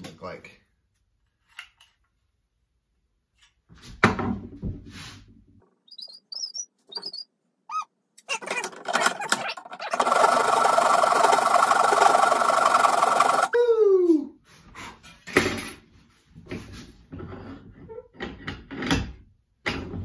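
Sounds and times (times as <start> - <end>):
high chirping squeaks: 5.8 - 8.6
handsaw cutting wood: 9.8 - 13.5.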